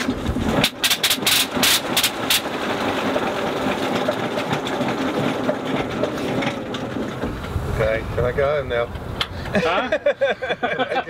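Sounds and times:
propeller engine pops: 0.0s - 9.6s.

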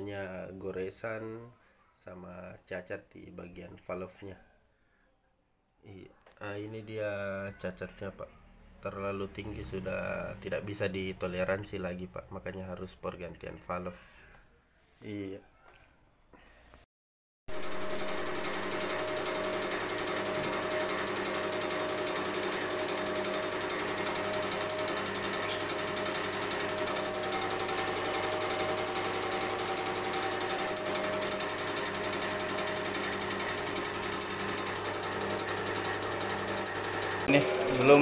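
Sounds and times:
fast even injector clicking: 17.5s - 38.0s.

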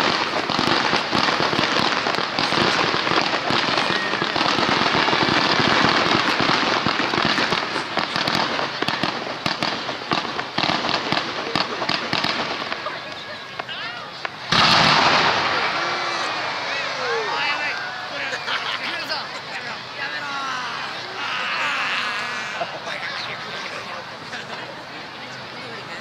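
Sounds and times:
fireworks popping and crackling: 0.0s - 26.0s.

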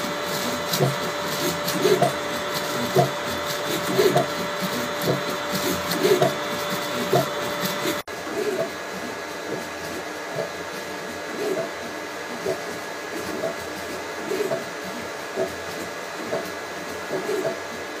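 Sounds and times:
motors whining in bursts: 0.0s - 8.1s
printer hiss: 0.0s - 17.9s.

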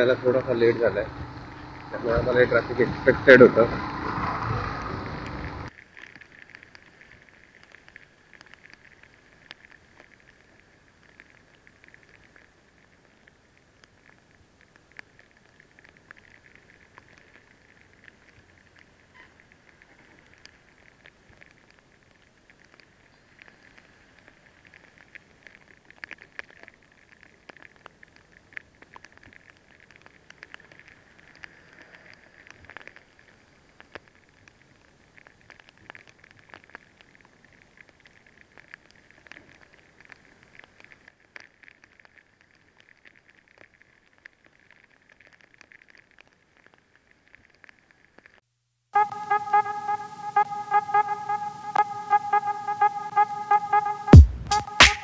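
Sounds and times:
rain pattering on camera: 0.0s - 54.8s
loud steady pitched tone: 49.0s - 55.0s.

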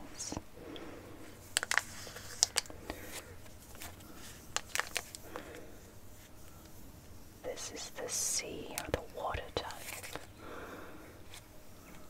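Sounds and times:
foil packet crinkling: 1.5s - 5.6s.

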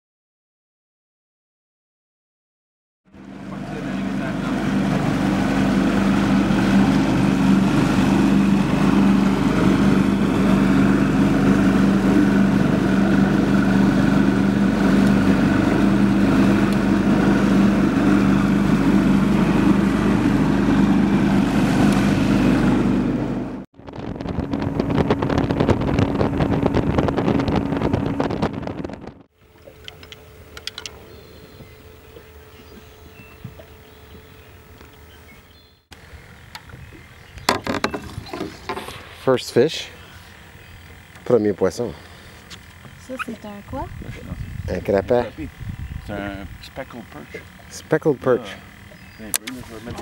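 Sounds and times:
motorboat engine running: 3.1s - 50.0s
wind buffeting microphone: 23.8s - 29.3s, 36.6s - 38.4s, 43.6s - 46.8s.

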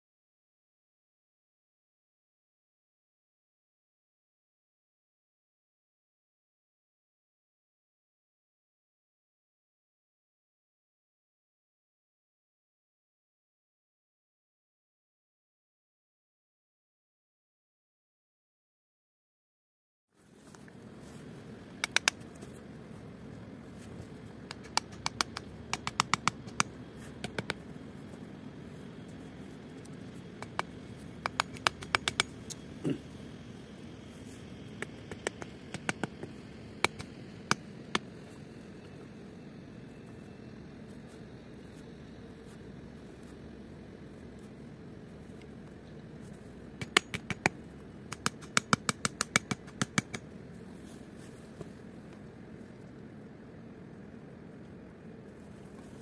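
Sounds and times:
low background noise: 20.2s - 56.0s
sharp hard taps: 21.8s - 22.2s, 24.5s - 27.6s, 30.4s - 32.4s, 34.8s - 38.0s, 46.8s - 50.2s
sharp clicks and ticks: 21.8s - 22.4s, 24.5s - 27.7s, 29.7s - 32.6s, 34.7s - 38.1s, 46.8s - 50.3s.

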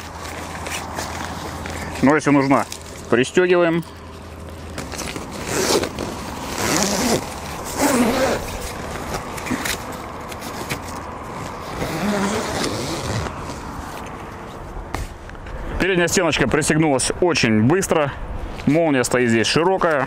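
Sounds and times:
tent zipper rasping: 4.8s - 13.8s.

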